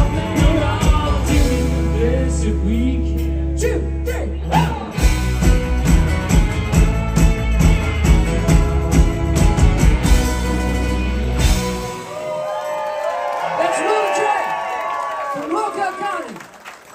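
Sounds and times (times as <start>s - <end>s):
person singing: 0.0s - 5.0s
rock band playing: 0.0s - 12.6s
drums: 0.0s - 12.9s.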